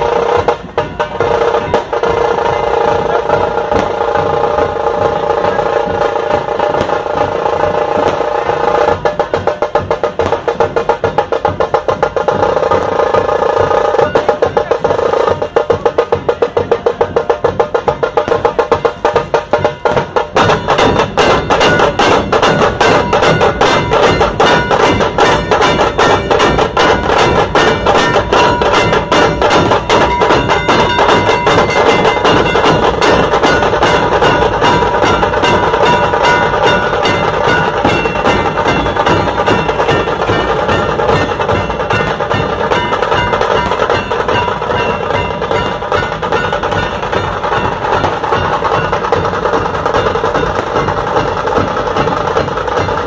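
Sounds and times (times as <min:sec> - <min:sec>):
large barrel drums beaten with sticks: 0:00.0 - 0:53.0
sharp fast drum strokes: 0:00.0 - 0:53.0.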